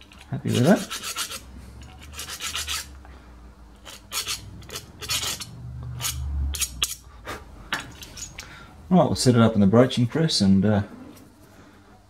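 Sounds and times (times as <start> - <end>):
hand file scraping metal: 0.0 - 3.0, 3.8 - 7.1.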